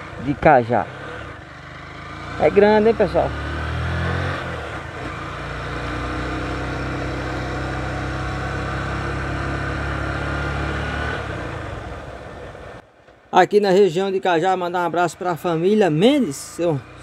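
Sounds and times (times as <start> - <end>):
motorcycle engine running: 0.0 - 12.8.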